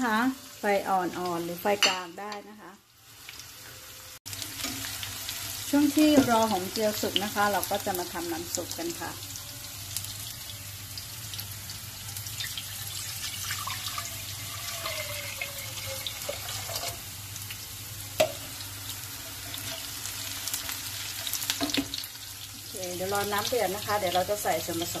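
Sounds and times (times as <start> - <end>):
water pouring into saucepan: 12.1 - 17.0.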